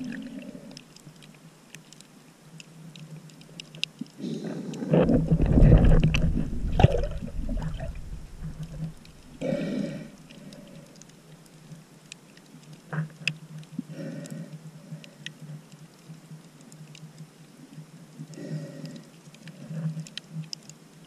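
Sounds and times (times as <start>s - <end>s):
low underwater hum: 0.0s - 21.0s
underwater clicks and crackles: 0.0s - 21.0s
muffled whooshes of water: 4.3s - 10.3s.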